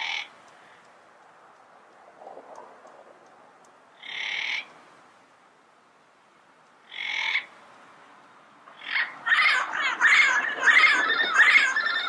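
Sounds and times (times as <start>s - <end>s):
parrot squawking: 4.0s - 4.7s, 6.9s - 7.5s, 8.8s - 12.0s.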